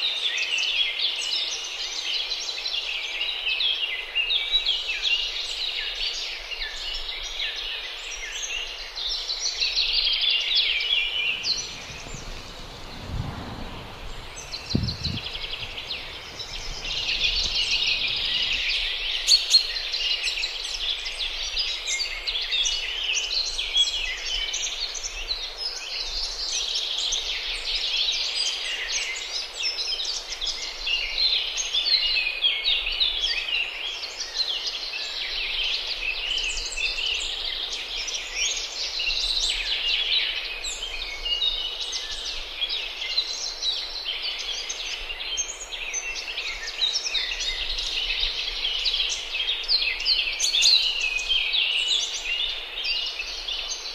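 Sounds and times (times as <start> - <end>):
small birds chirping: 4.4 - 27.6
low thuds: 11.2 - 18.8.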